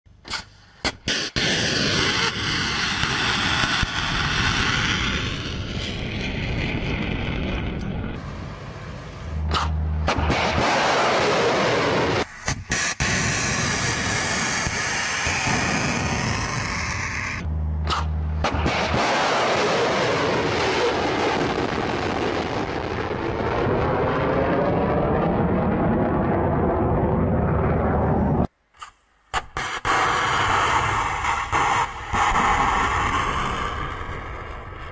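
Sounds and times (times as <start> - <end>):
rocket motor roar: 1.6 - 28.5.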